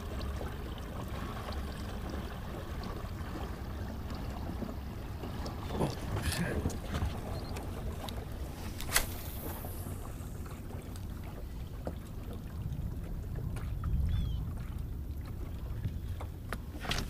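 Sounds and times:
wind rumbling on microphone: 5.4s - 17.0s.

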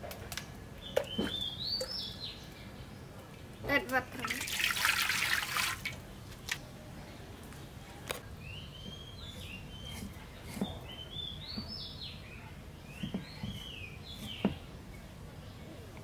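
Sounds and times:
bird chirping: 0.8s - 3.2s, 8.3s - 15.8s.

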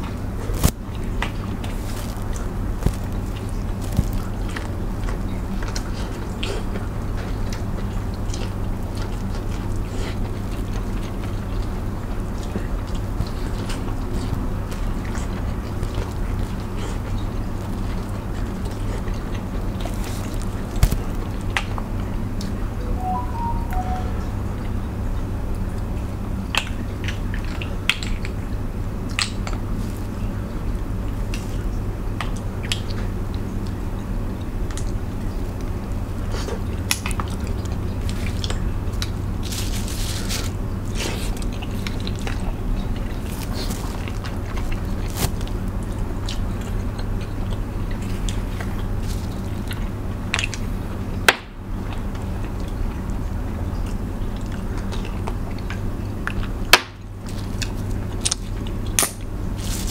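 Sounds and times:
chewing: 0.4s - 22.5s, 34.7s - 50.9s, 51.8s - 59.9s
crab shell cracking: 1.7s - 4.7s, 19.8s - 21.3s.

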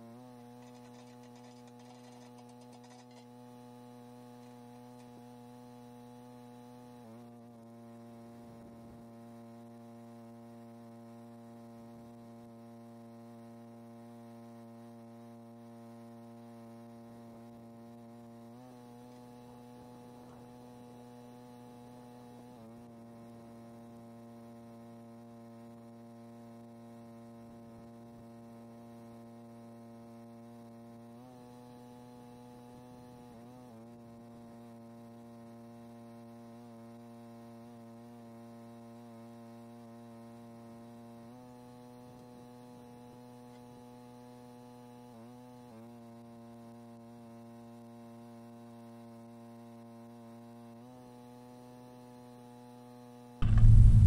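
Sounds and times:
welder transformer humming: 0.0s - 9.0s, 53.4s - 54.0s.

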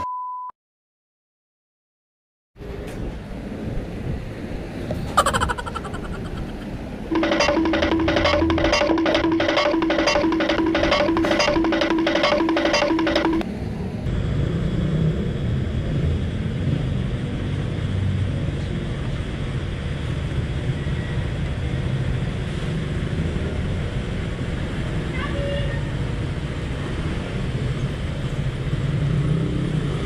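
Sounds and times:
background music with steady beat: 5.2s - 13.4s.

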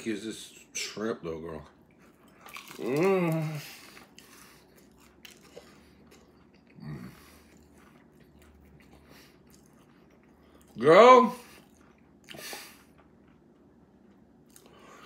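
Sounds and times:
man chewing: 1.8s - 15.0s
man humming appreciatively: 2.8s - 3.7s.

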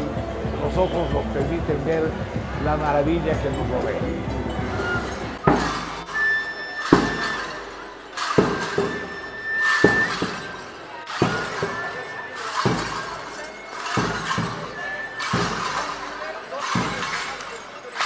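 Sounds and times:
ankle jingles crashing: 3.4s - 18.0s
thin high held tone: 4.6s - 16.4s
dancers stamping: 6.8s - 18.0s.

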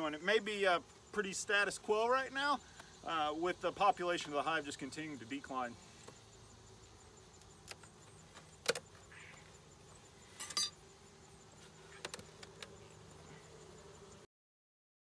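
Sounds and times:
faint steady hum: 0.0s - 14.3s
ringing metal clinks: 10.4s - 10.8s.

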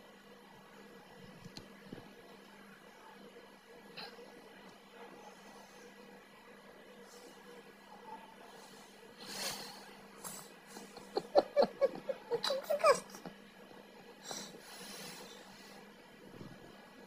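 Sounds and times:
person giggling: 10.8s - 13.3s.

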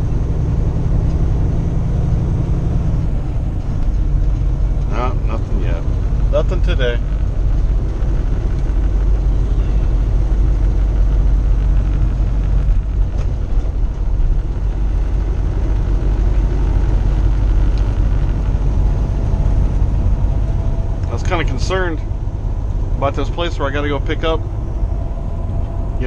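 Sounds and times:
road noise: 0.0s - 26.0s
truck engine drone: 0.0s - 26.0s.

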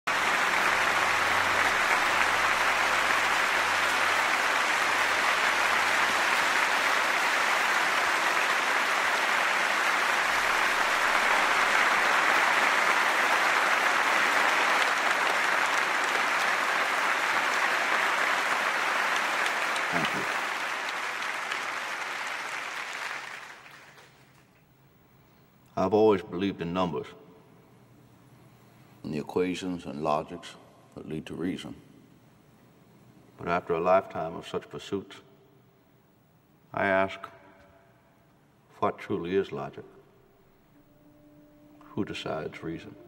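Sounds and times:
audience applauding: 0.0s - 24.5s.

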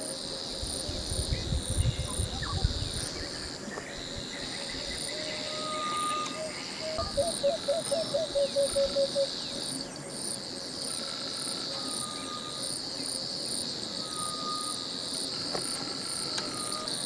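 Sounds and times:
crickets trilling chorus: 0.0s - 17.0s
pulsing insect chirp: 0.0s - 17.0s.

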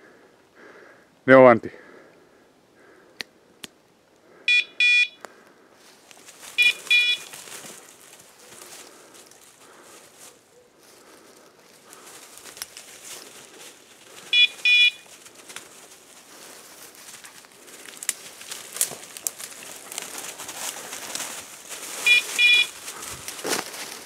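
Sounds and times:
electronic collar double beep: 4.5s - 5.2s, 6.6s - 7.3s, 14.4s - 15.0s, 22.1s - 22.7s
twigs crackling underfoot: 5.2s - 24.0s
dry leaves crunching underfoot: 5.8s - 24.0s.

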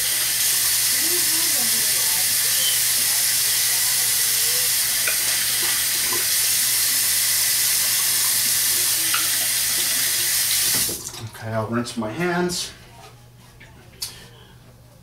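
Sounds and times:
sink tap running: 0.0s - 11.2s.

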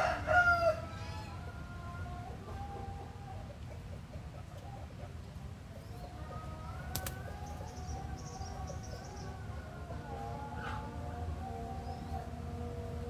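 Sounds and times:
distant bird calls: 1.0s - 13.0s
rooster wings flapping: 6.9s - 7.3s.

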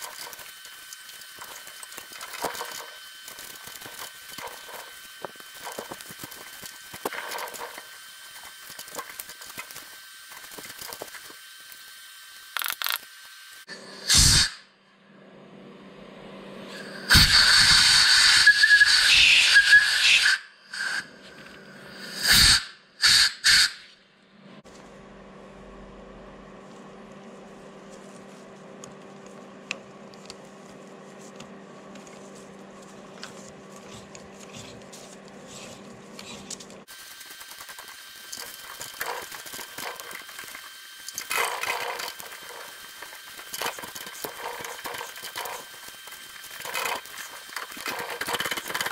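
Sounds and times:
steady low hum: 13.6s - 17.1s, 23.9s - 48.9s
air blow gun hissing blasts: 13.9s - 14.6s, 16.7s - 21.1s, 21.7s - 23.9s.

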